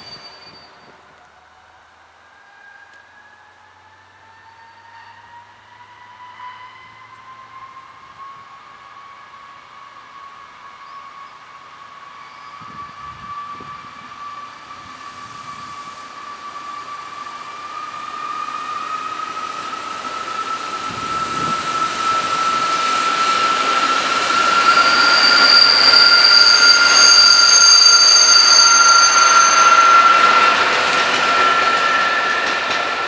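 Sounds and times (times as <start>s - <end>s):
wheel squeals: 0.0s - 1.2s, 12.1s - 33.0s
diesel train passing: 0.0s - 33.0s.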